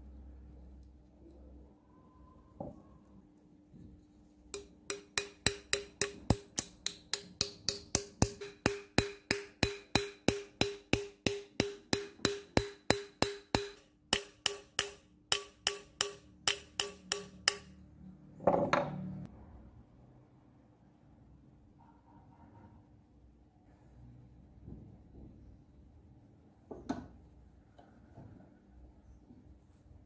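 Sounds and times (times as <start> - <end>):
hammer tapping on metal: 4.6 - 17.8.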